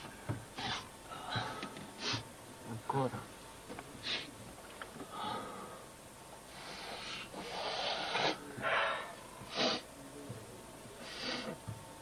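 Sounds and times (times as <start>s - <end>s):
man snorting through nose: 6.6s - 9.9s, 11.0s - 11.6s.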